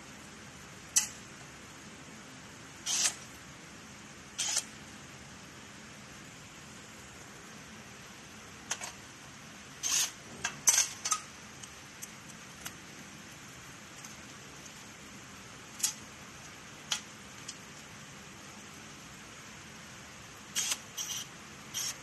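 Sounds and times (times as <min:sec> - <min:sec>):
screw clicking on sheet metal: 0:02.9 - 0:03.2, 0:04.4 - 0:04.7, 0:20.5 - 0:22.0.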